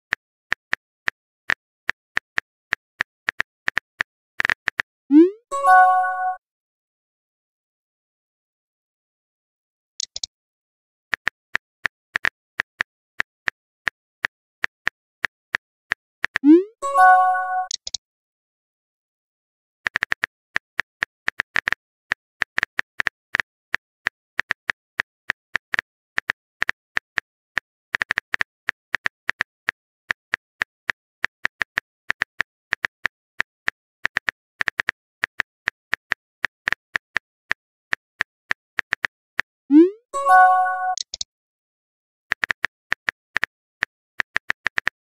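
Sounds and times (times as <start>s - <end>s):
message sent chime: 5.1s - 6.4s, 16.4s - 17.7s, 39.7s - 41.1s
keyboard typing clicks: 10.0s - 10.3s, 16.3s - 18.0s, 39.7s - 41.3s.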